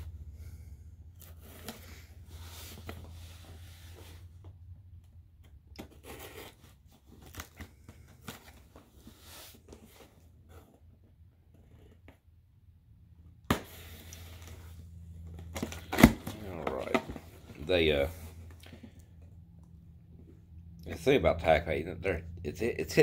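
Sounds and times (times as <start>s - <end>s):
low hum: 12.8s - 23.0s.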